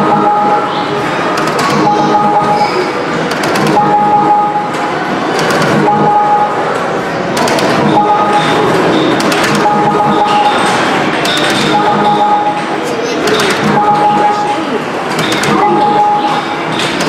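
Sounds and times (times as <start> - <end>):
arcade game sounds: 0.0 - 17.0
sharp clicks: 7.4 - 12.6
short beep tone: 7.9 - 10.8, 11.6 - 12.6, 13.6 - 14.4, 15.2 - 16.7.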